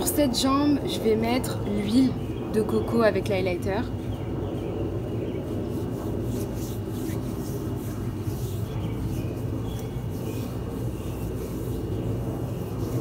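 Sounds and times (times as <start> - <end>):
steady low rumble: 0.0 - 13.0
hand rubbing oil into skin: 5.0 - 13.0.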